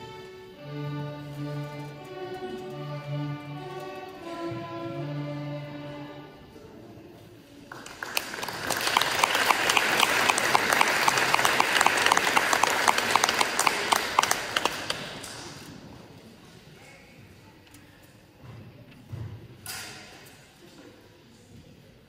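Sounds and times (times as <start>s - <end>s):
audience applauding: 7.7s - 15.4s.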